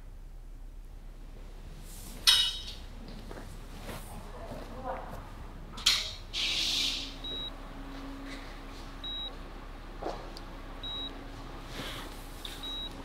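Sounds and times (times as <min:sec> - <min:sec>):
faint low hum: 0:00.0 - 0:13.0
patient monitor beeping: 0:07.2 - 0:07.6, 0:09.0 - 0:09.4, 0:10.8 - 0:11.2, 0:12.5 - 0:13.0.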